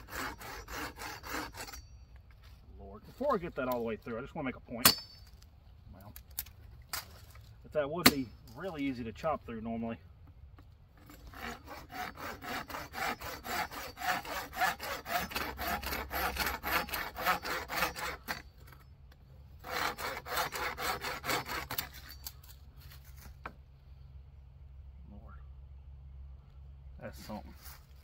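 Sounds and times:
machete sawing through branch: 0.0 - 1.8, 11.0 - 18.4, 19.6 - 23.4.

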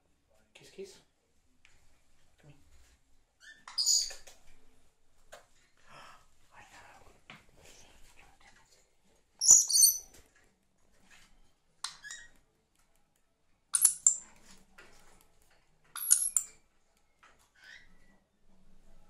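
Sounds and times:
parrot squawking: 9.4 - 10.0.

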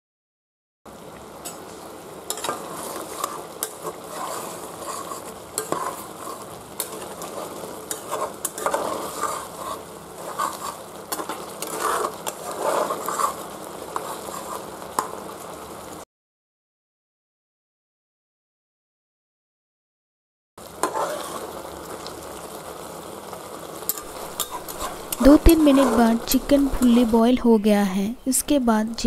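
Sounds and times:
chicken sizzling and bubbling: 0.9 - 16.0, 20.6 - 29.0
spatula scraping metal pan: 2.3 - 15.2, 20.8 - 21.6, 23.9 - 27.1.

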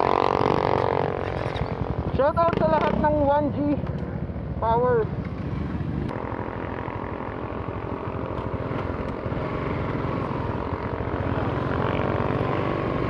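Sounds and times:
scooter engine running: 5.3 - 13.0.

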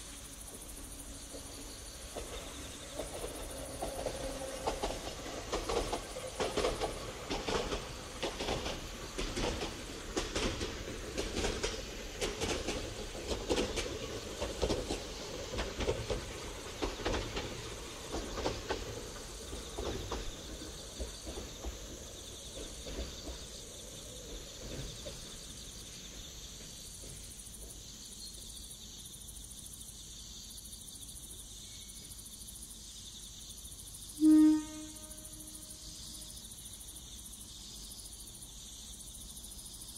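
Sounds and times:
train wheels clattering over rail joints: 0.0 - 34.1
insect chirping: 0.0 - 39.9
train horn blast: 34.2 - 35.9.

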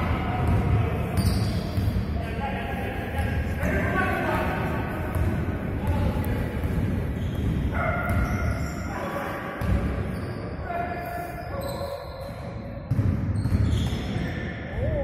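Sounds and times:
basketball bouncing: 5.0 - 8.6, 9.6 - 10.0, 12.2 - 14.1.

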